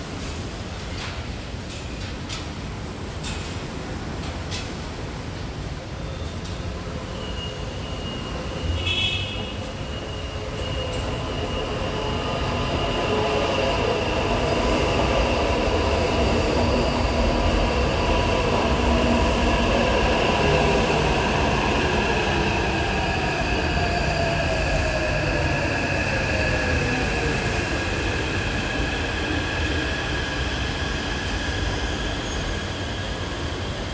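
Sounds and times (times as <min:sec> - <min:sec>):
high brake squeal: 0:06.0 - 0:13.8, 0:30.3 - 0:33.8.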